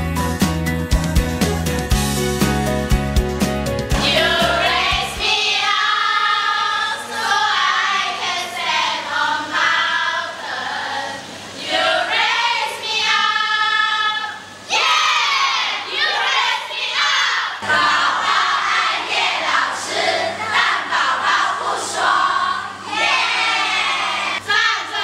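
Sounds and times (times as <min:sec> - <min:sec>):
backing music: 0:00.0 - 0:05.7
women singing together: 0:04.0 - 0:25.0.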